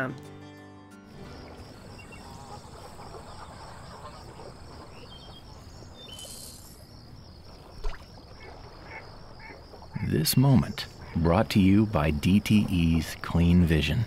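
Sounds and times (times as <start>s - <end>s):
insects chorus pulsing: 1.1s - 14.0s
short bird chirps: 5.9s - 6.8s.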